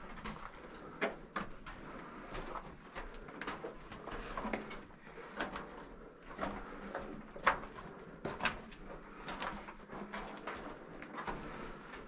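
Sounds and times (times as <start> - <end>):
footsteps on rocky floor: 0.0 - 12.0.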